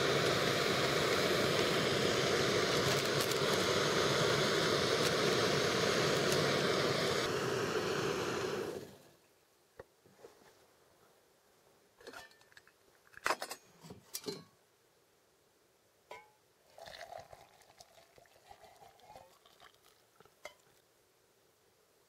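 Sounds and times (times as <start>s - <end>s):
liquid pouring into cup: 16.7s - 20.8s.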